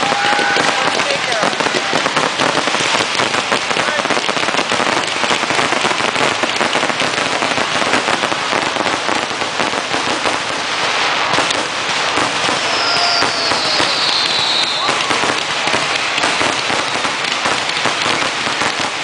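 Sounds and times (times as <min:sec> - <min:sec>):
fireworks crackling: 0:00.0 - 0:19.0
high falling whistle: 0:12.6 - 0:15.2.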